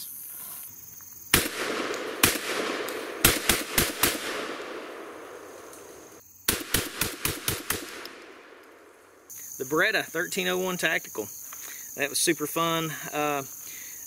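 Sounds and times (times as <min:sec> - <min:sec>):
shotgun shots echoing: 0:01.3 - 0:09.1.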